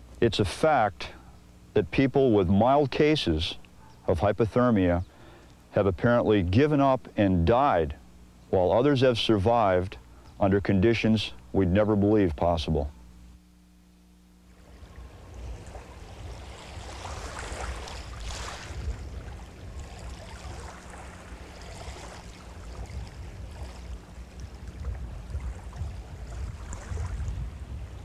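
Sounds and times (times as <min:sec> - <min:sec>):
steady low rumble: 0:00.0 - 0:28.0
wind: 0:00.0 - 0:28.0
waves on open water: 0:14.5 - 0:28.0.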